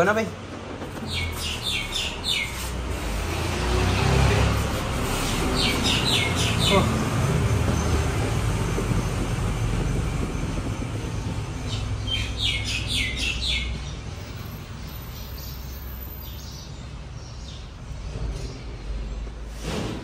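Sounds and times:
bird chirping: 0.9s - 3.0s, 5.2s - 9.1s, 9.9s - 17.7s.

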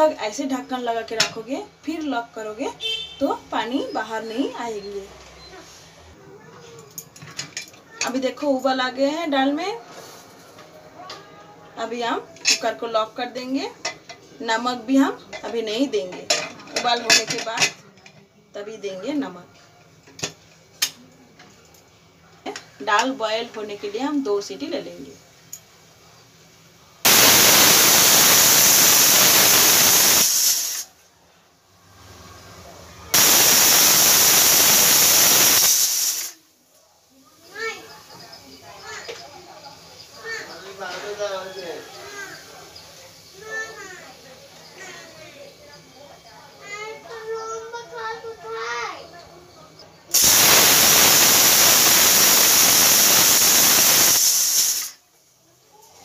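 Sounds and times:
pressure cooker whistle hiss: 2.8s - 3.2s, 27.1s - 30.9s, 33.1s - 36.4s, 50.1s - 55.0s.

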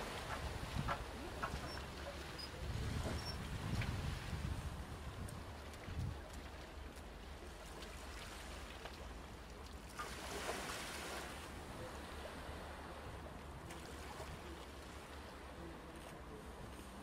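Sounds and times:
boat engine low rumble: 0.0s - 17.0s.

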